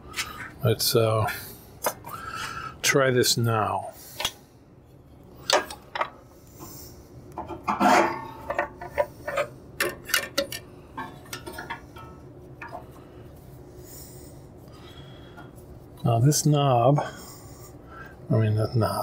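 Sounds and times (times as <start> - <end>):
metal scrape: 7.7 - 9.6.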